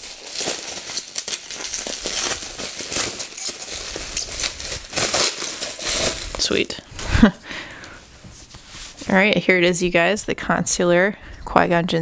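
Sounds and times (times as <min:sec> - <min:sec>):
bubble wrap crinkling: 0:00.0 - 0:07.3.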